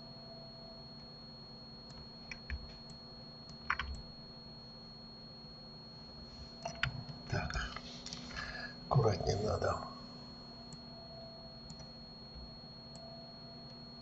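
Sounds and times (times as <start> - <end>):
faint steady hum: 0.0 - 14.0
keyboard and mouse clicks: 3.5 - 4.0, 6.6 - 7.0.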